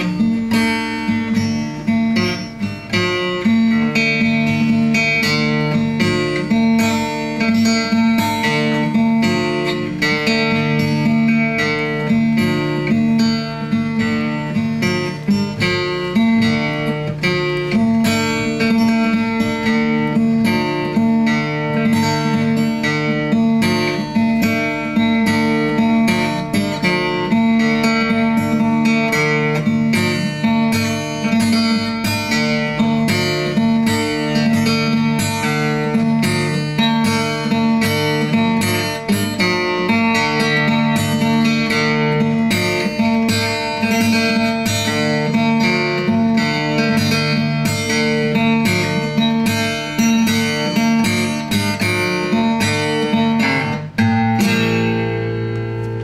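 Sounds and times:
plucked string notes: 0:00.0 - 0:56.0.

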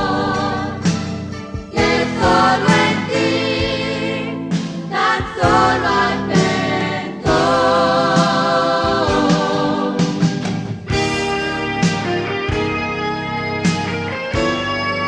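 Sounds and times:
choir singing with accompaniment: 0:00.0 - 0:11.3.

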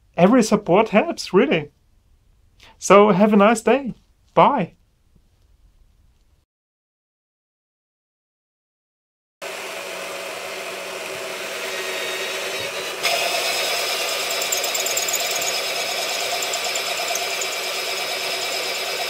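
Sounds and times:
drill press motor humming: 0:09.5 - 0:19.0
high motor whine: 0:12.7 - 0:19.0.

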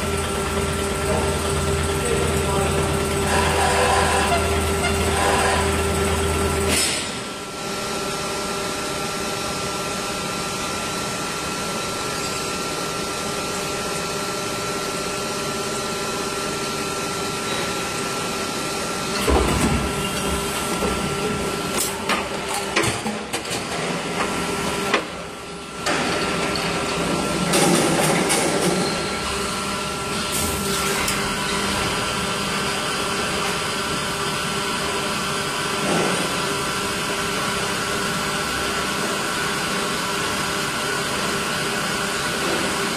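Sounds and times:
machine hum with whine: 0:00.0 - 0:42.9.

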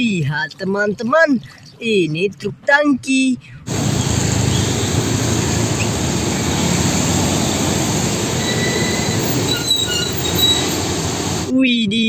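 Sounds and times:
truck engine rumble: 0:03.7 - 0:11.5
tyre noise on wet road: 0:03.7 - 0:11.5
thin high squeal: 0:08.4 - 0:10.8.

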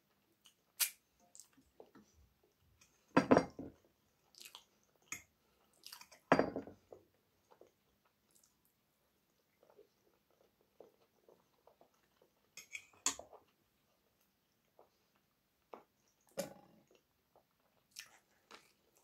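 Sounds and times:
person chewing: 0:04.2 - 0:06.2.

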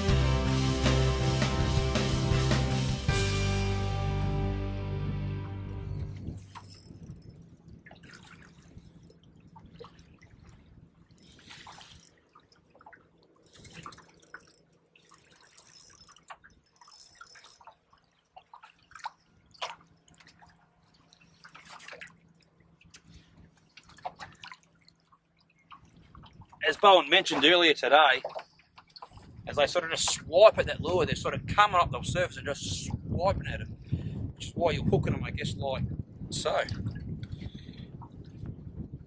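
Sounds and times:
water splashes and drips: 0:06.2 - 0:30.3, 0:36.4 - 0:38.9.

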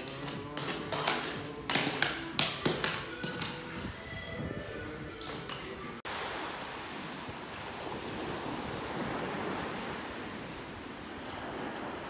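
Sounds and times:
small waves breaking on sand: 0:06.1 - 0:12.0.

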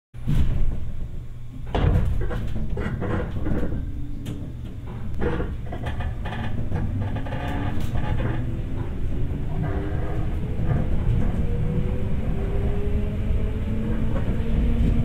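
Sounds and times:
low rumble: 0:00.2 - 0:15.0
train clunks and knocks: 0:00.2 - 0:15.0
traction motor whine: 0:05.7 - 0:15.0.

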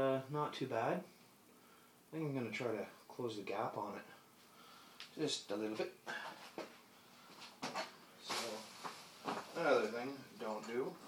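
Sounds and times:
shuffling sounds: 0:06.2 - 0:10.8.

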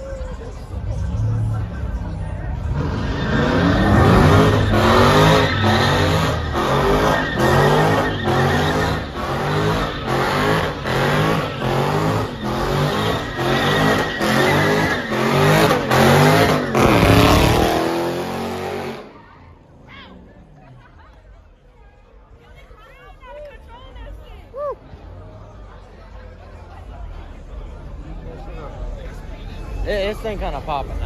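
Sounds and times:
tires squealing: 0:00.8 - 0:20.5
car engine revving hard: 0:02.7 - 0:19.1.

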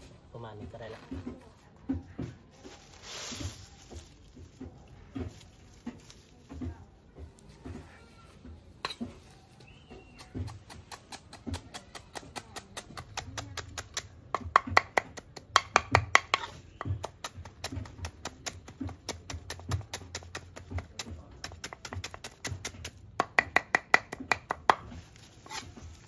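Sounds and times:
knife chopping on cutting board: 0:10.2 - 0:25.7.

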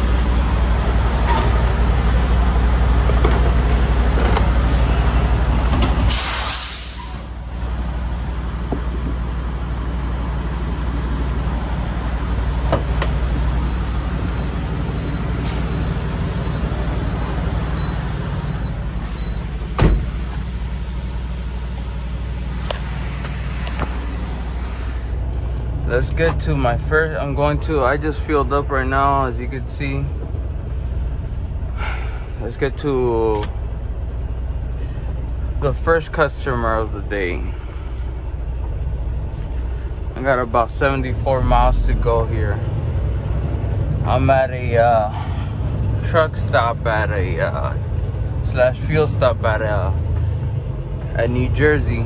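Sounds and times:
truck diesel engine idling: 0:00.0 - 0:52.0
cab door shutting: 0:12.7 - 0:13.2, 0:19.1 - 0:20.4.

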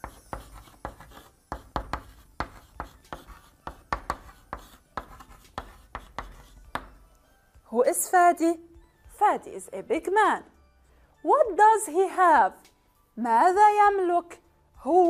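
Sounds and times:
chalk writing on a blackboard: 0:00.0 - 0:07.0.

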